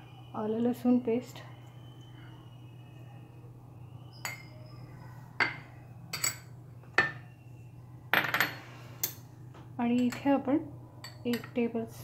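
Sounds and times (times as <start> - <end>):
spoons clinking against glass bowl: 4.1 - 7.3, 9.9 - 10.4, 11.0 - 11.8.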